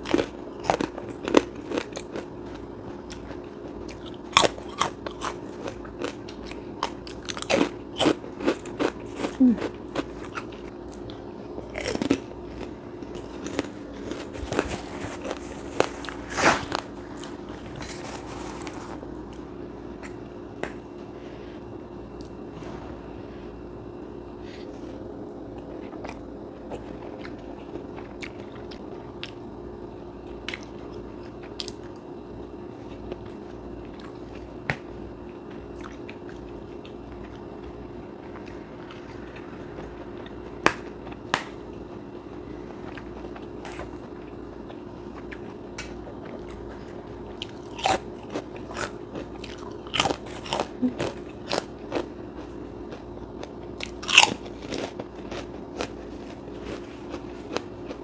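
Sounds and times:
crunchy bites of crackers: 0:00.0 - 0:19.0, 0:42.8 - 0:58.0
person chewing food: 0:00.0 - 0:22.4, 0:24.4 - 0:32.1, 0:32.8 - 0:58.0
steady low hum: 0:00.0 - 0:58.0.

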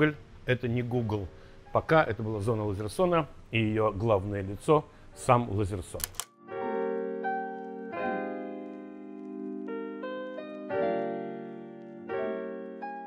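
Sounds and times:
slow piano chords: 0:06.3 - 0:13.0.

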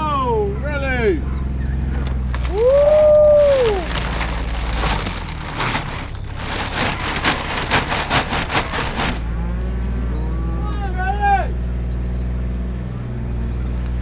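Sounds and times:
utility vehicle engine hum: 0:00.0 - 0:14.0
rustling and crackling: 0:02.1 - 0:09.4
sharp rattles: 0:02.3 - 0:09.4.

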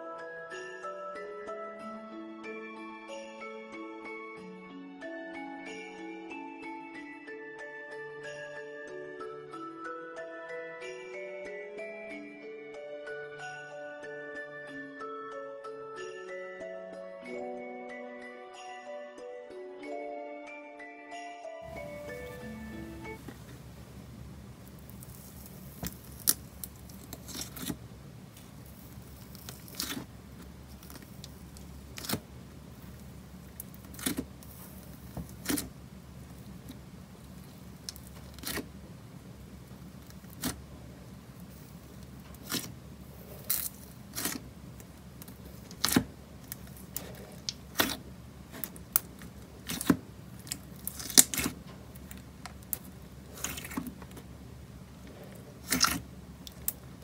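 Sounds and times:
low steady hum: 0:21.6 - 0:57.0
slime squished by fingers: 0:24.8 - 0:27.8, 0:28.6 - 0:30.1, 0:31.9 - 0:32.3, 0:33.6 - 0:35.7, 0:42.3 - 0:42.7, 0:45.2 - 0:48.0, 0:48.6 - 0:52.1, 0:55.6 - 0:56.8.

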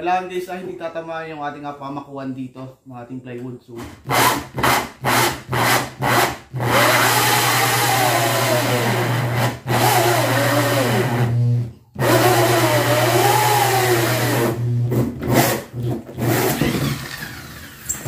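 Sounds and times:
electric drill cutting into wood: 0:04.0 - 0:18.0.

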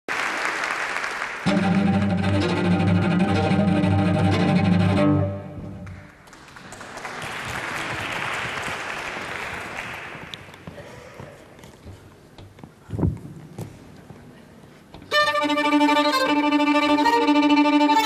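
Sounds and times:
audience noise in hall: 0:00.1 - 0:18.0
cello bowed low note: 0:01.5 - 0:05.8.

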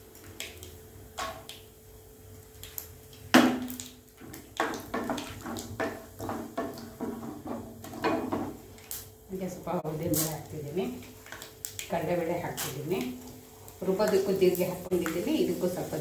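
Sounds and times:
frying in oil: 0:00.0 - 0:16.0
wooden spatula knocking on pan: 0:04.6 - 0:08.6.

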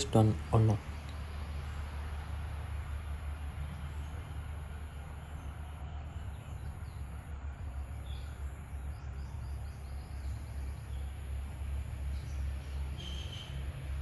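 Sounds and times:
faint bird chirps: 0:12.1 - 0:13.6.

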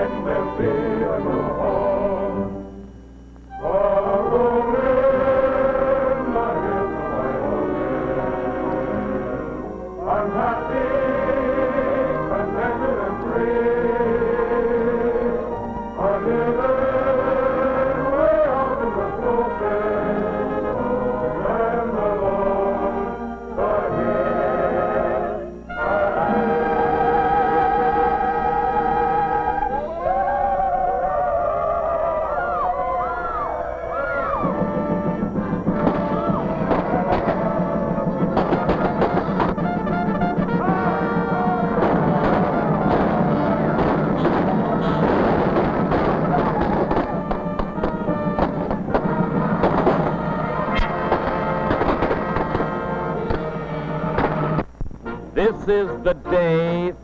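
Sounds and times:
choir singing: 0:00.0 - 0:02.8, 0:03.5 - 0:57.0
orchestral music with brass: 0:03.5 - 0:29.9, 0:34.4 - 0:56.6
soundtrack music: 0:34.2 - 0:57.0.

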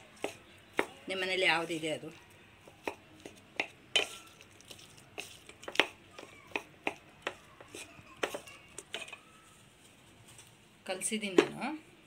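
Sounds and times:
metal spoon scraping metal pot: 0:03.9 - 0:04.3.

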